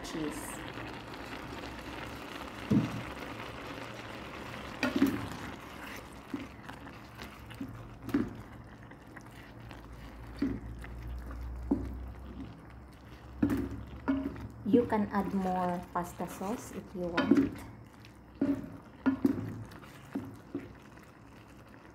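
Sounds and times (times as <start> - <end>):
broth simmering and bubbling: 0.0 - 21.9
wooden spatula scraping a pan: 4.8 - 21.9.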